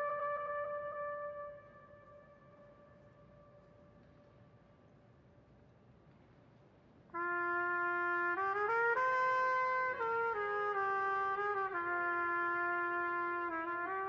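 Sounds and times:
solo brass instrument melody: 0.0 - 3.7, 7.2 - 14.0.

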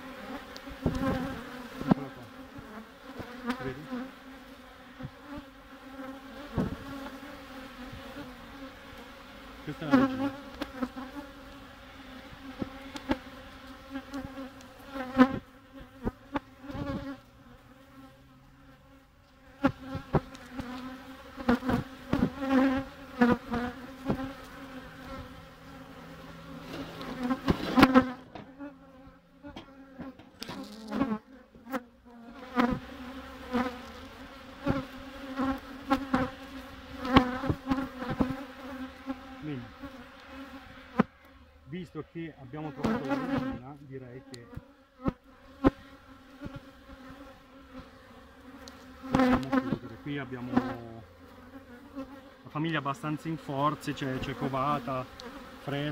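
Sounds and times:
honeybees buzzing: 0.0 - 55.9
sharp knocks near microphone: 26.7 - 28.6, 29.5 - 30.6.

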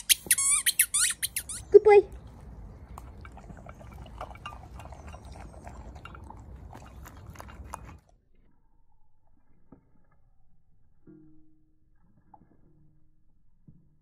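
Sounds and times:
dog crunching dry kibble: 2.1 - 8.1.

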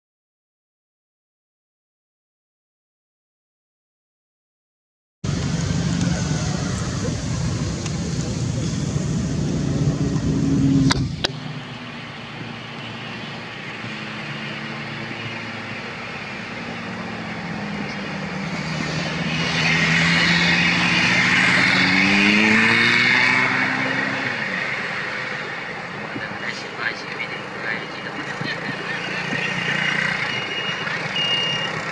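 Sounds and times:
vehicle engine passing: 5.2 - 31.9.

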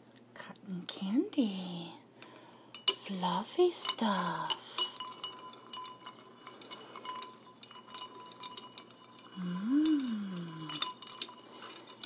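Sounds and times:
spoon clinking ice in glass: 3.8 - 12.0
person humming: 9.4 - 10.8.

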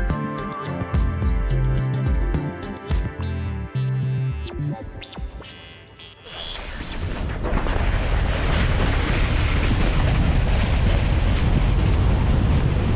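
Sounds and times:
music: 0.0 - 6.3
snow scraping under boards: 6.3 - 9.7
wind buffeting microphone: 7.0 - 12.9.

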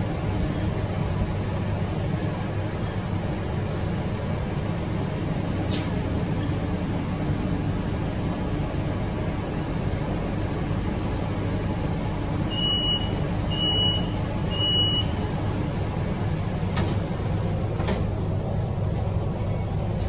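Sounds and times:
train humming: 0.0 - 20.0
short high beeps: 12.5 - 15.2.

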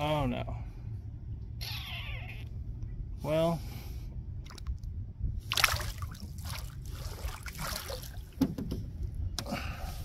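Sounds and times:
water splashing against a canoe: 5.5 - 8.6.

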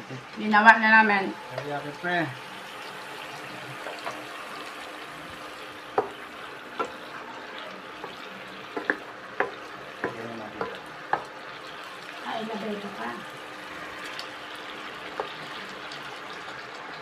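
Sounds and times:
sauce bubbling and sizzling in a pan: 0.0 - 17.0
spatula knocking against pan: 5.9 - 6.2, 8.7 - 11.3.

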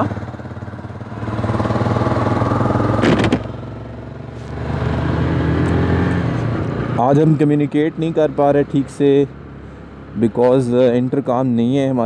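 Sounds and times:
motorcycle engine pulling away: 0.0 - 7.1.

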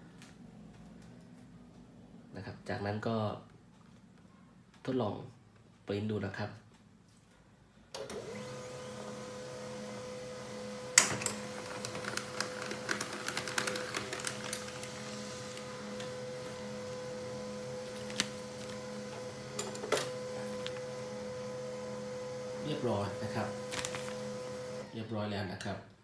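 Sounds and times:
laser printer motor hum: 8.2 - 24.9
printer clicks and ticks: 11.0 - 16.2.

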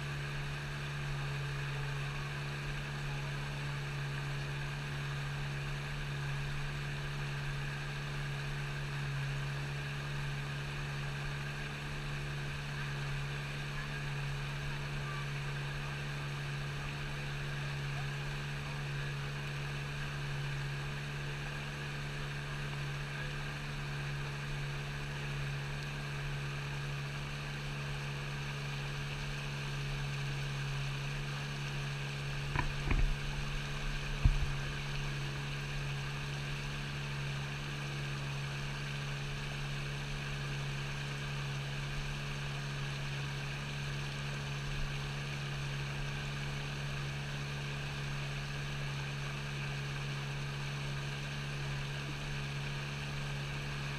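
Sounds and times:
low mechanical hum: 0.0 - 53.9
short knocks: 32.5 - 33.5.

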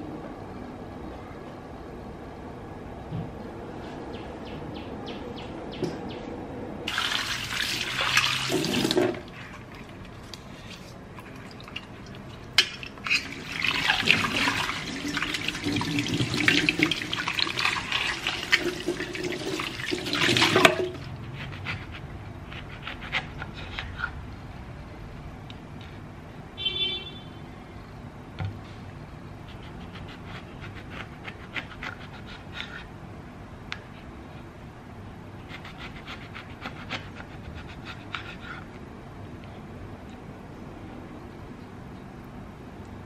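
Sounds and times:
tap water running into sink: 6.9 - 9.3, 13.2 - 21.0.

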